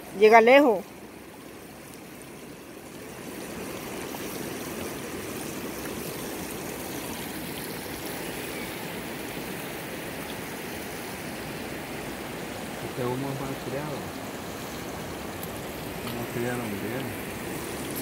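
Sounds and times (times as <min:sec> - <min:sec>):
river water rushing: 0:00.0 - 0:18.0.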